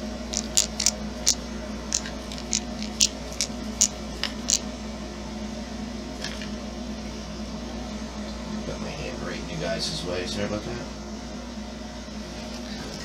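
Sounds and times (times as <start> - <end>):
steady low hum: 0.0 - 13.0
hands clicking and tapping motor parts: 0.3 - 1.0, 1.9 - 4.6.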